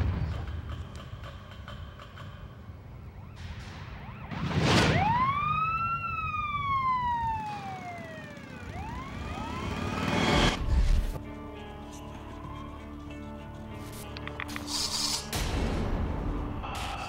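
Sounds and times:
police siren wailing: 3.1 - 10.9.

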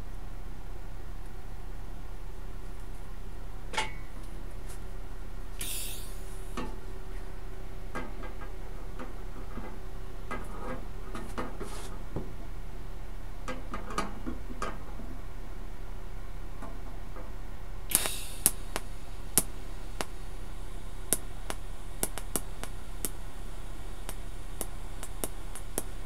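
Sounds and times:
electrical hum: 0.0 - 26.0
short hiss: 5.6 - 6.6, 17.9 - 26.0.

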